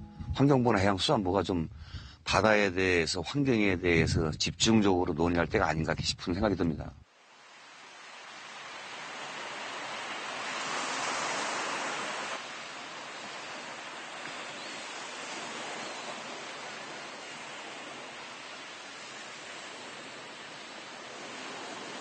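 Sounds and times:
wind: 0.0s - 22.0s
surf: 7.3s - 22.0s.

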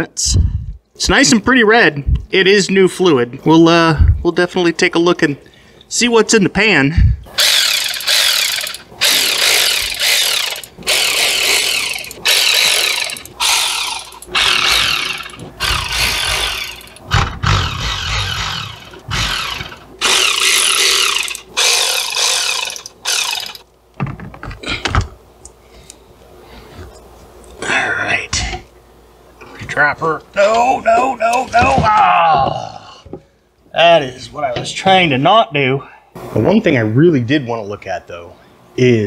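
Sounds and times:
cordless ratchet running: 7.4s - 23.6s.

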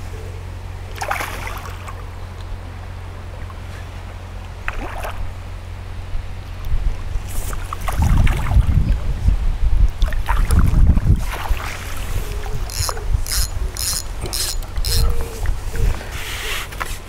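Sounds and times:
wind buffeting microphone: 6.0s - 16.2s.

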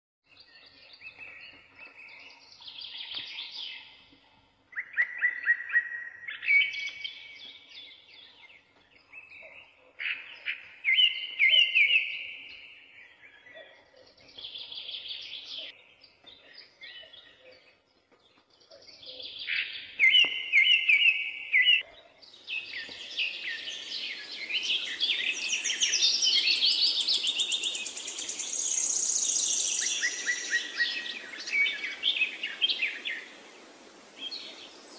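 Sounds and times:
songbirds singing trilled phrases: 4.7s - 34.9s
background hiss: 22.2s - 34.9s.

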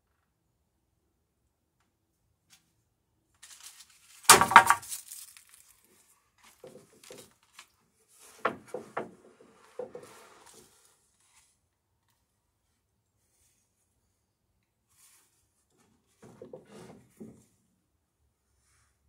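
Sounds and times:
wooden boards knocking and scraping: 4.3s - 5.0s, 8.2s - 10.3s, 16.2s - 17.5s.

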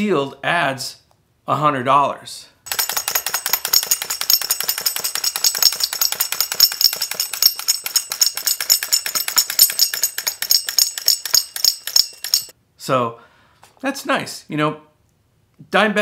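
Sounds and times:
thin metallic jingle: 2.7s - 12.5s
toy mechanism rattling clicks: 2.7s - 12.5s.

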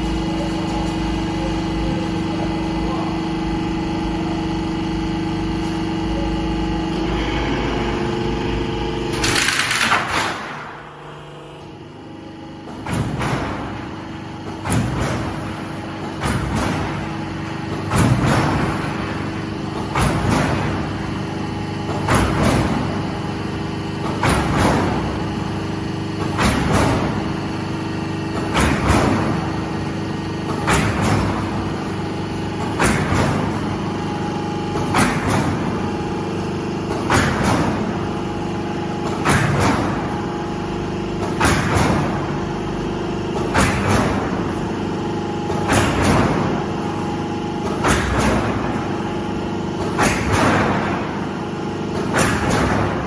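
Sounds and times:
machine motor hum: 0.0s - 53.0s
metallic bang with ringing: 6.9s - 11.6s.

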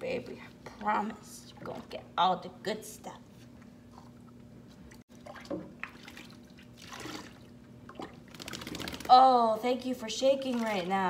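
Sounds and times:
water dripping and splashing in sink: 5.1s - 9.1s, 10.4s - 11.0s.

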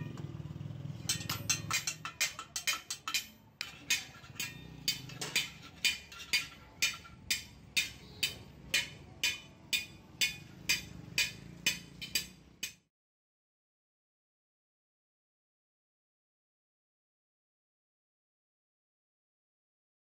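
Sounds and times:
hammer striking metal on anvil: 0.0s - 12.9s.

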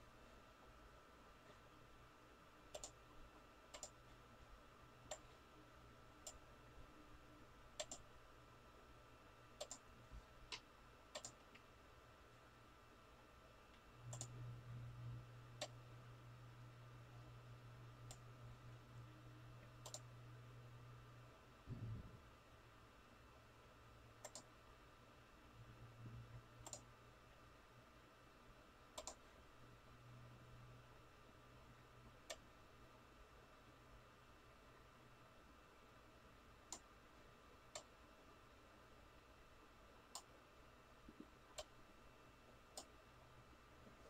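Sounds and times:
low steady hum: 0.0s - 44.0s
faint computer clicks: 2.7s - 3.0s, 3.7s - 4.0s, 7.8s - 8.1s, 9.6s - 9.9s, 10.5s - 11.7s, 13.7s - 14.4s, 19.7s - 20.1s, 24.2s - 24.5s, 26.6s - 26.9s, 28.9s - 29.3s.

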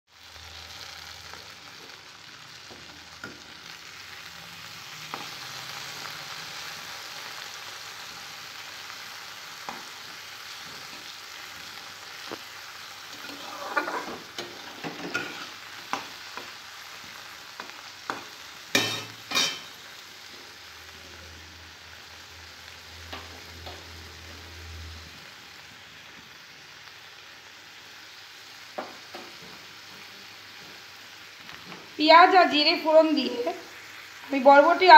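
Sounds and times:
vegetables sizzling in hot oil: 0.1s - 34.9s
metal spatula scraping wok: 13.1s - 16.0s, 18.1s - 19.8s.

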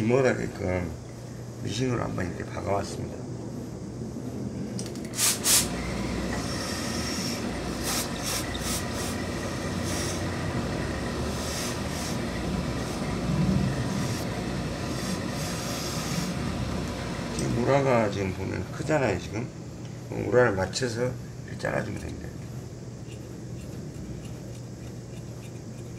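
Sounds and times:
steam iron hissing: 5.0s - 17.4s
short puffs of steam: 5.2s - 5.8s, 6.4s - 10.3s, 11.3s - 12.3s, 14.9s - 16.4s.

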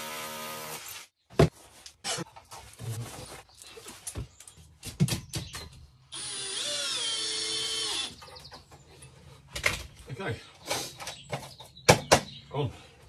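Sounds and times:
cordless drill whining: 6.1s - 8.2s.

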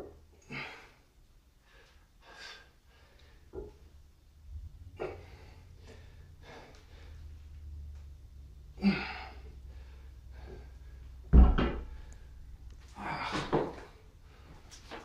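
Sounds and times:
low hum: 3.7s - 14.6s
man breathing forcefully: 4.9s - 7.5s, 8.8s - 14.7s
weight bar thudding on floor: 11.3s - 12.0s.

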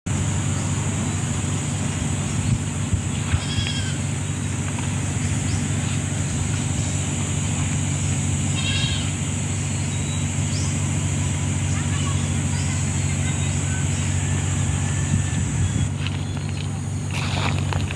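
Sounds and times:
insects droning: 0.1s - 17.9s
wavering animal calls: 3.2s - 4.6s, 8.2s - 10.0s.

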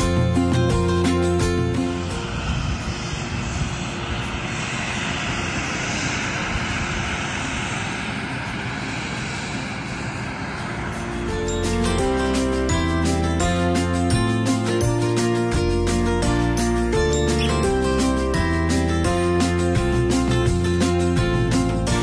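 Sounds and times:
music: 0.0s - 5.4s, 10.8s - 22.0s
steam venting hiss: 0.1s - 14.9s.

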